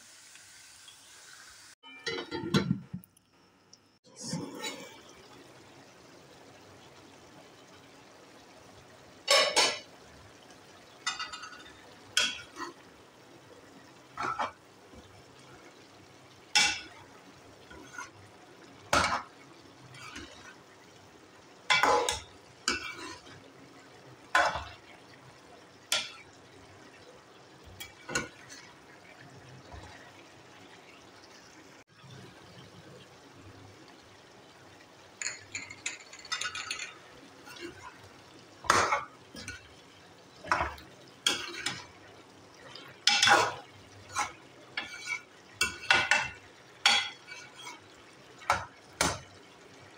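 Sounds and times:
metal spoon scraping a pot: 44.1 - 46.1, 46.9 - 47.9.

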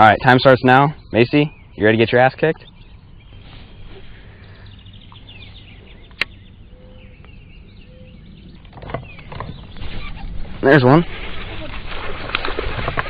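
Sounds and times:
wind rumble on microphone: 2.6 - 13.0.

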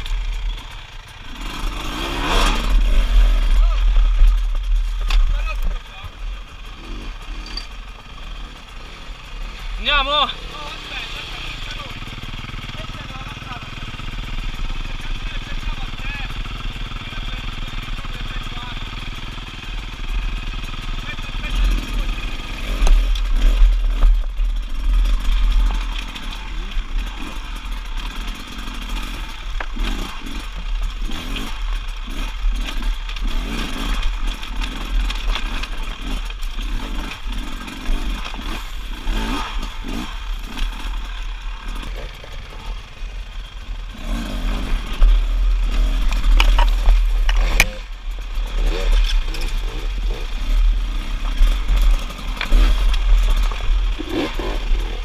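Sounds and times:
dirt bike engine revving: 0.0 - 55.0
stones clattering under tyres: 46.0 - 47.9.

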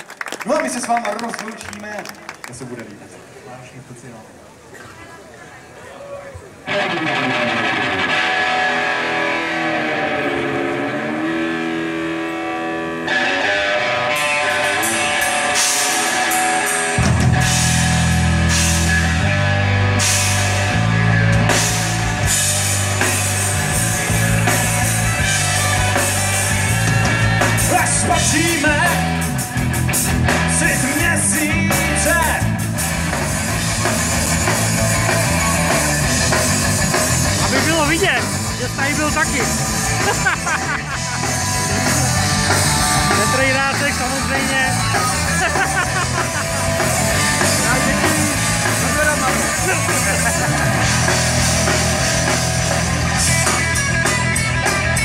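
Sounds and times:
electric guitar: 6.6 - 55.0
live rock band playing: 6.6 - 55.0
cymbals and drums: 14.2 - 55.0.

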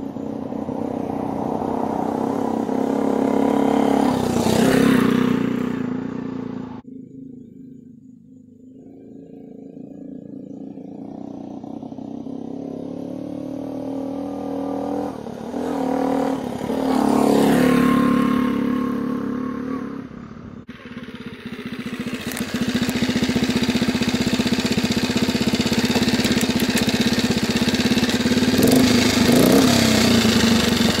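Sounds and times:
motorcycle passing by: 0.0 - 7.9, 8.8 - 31.0
small engine putter close up: 20.8 - 28.2.

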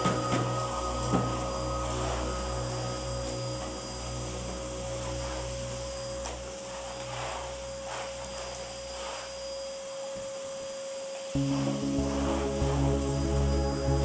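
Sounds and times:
background music: 0.0 - 6.0, 11.4 - 14.0
vacuum cleaner running: 0.0 - 14.0.

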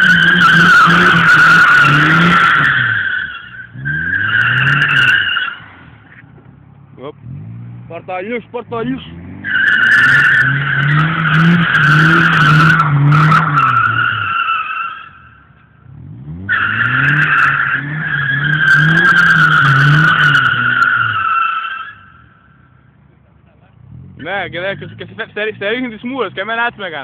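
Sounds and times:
car engine revving hard: 0.0 - 3.0, 7.2 - 8.1, 8.7 - 14.4, 15.8 - 21.3
tyres squealing: 9.4 - 15.3.

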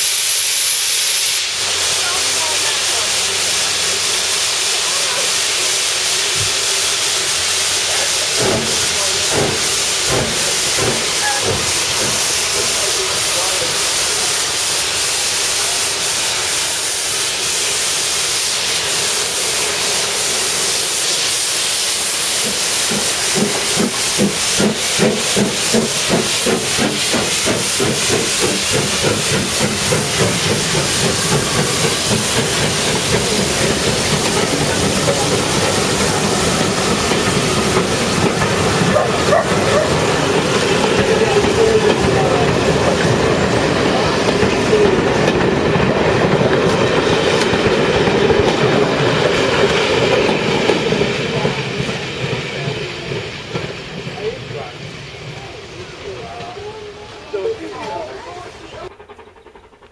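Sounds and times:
rhythmic locomotive exhaust beats: 0.0 - 59.9
steam locomotive hissing steam: 0.0 - 59.9
train wheels clattering over rail joints: 7.4 - 14.6, 22.4 - 55.5.

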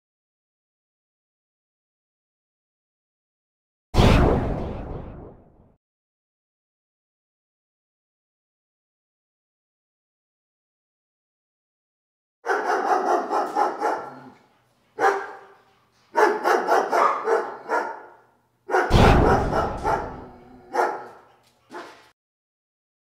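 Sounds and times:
dog barking: 12.4 - 22.1
deep thump: 18.9 - 20.3.

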